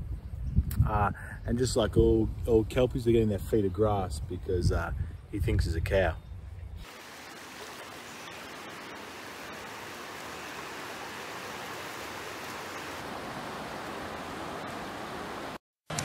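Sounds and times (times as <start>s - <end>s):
small waves washing on shore: 6.8s - 15.6s.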